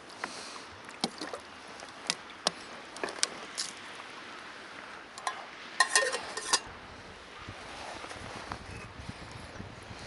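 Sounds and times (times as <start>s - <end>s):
metal pot clinking: 5.2s - 6.7s.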